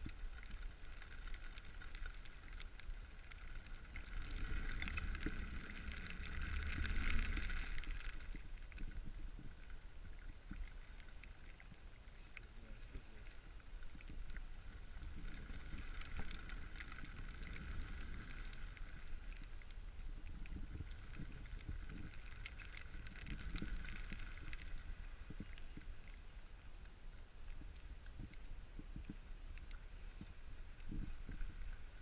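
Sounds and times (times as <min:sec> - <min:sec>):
low rumble: 0:03.0 - 0:10.5.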